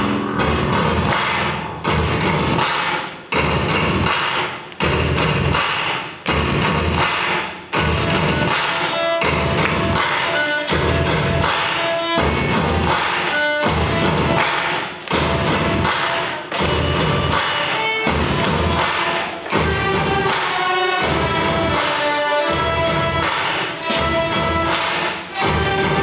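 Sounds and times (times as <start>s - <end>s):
low thumping beat: 0.0s - 2.7s, 3.3s - 5.7s, 6.3s - 7.1s, 7.7s - 14.5s, 15.1s - 26.0s
violins playing rock music: 0.0s - 2.7s, 7.7s - 26.0s.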